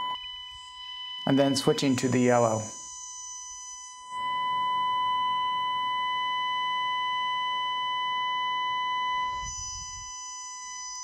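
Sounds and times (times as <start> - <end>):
steady test tone: 0.0 - 11.0
speaker hiss: 1.3 - 2.7.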